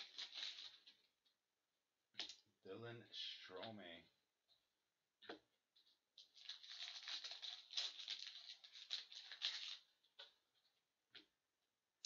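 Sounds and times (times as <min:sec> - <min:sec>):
foil wrapper crinkling: 0:00.0 - 0:01.0, 0:06.2 - 0:09.9.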